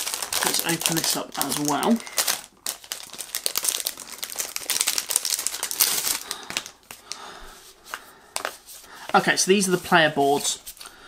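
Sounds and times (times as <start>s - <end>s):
packaging rustling and crackling: 0.0s - 7.2s.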